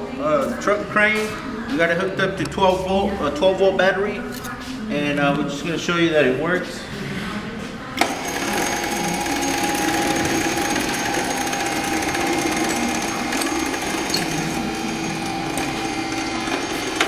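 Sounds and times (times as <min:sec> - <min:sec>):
electric winch motor running: 0:08.0 - 0:17.0.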